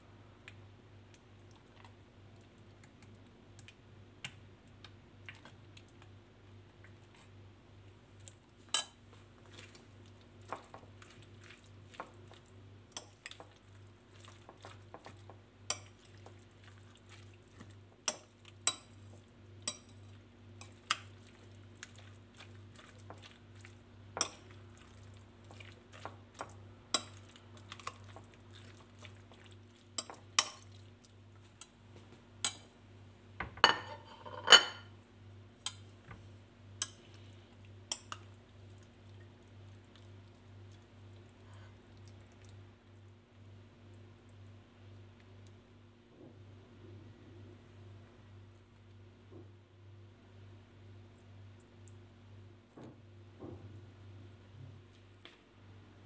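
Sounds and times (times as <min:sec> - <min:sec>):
bowl clattering and scraping: 0:33.4 - 0:34.9.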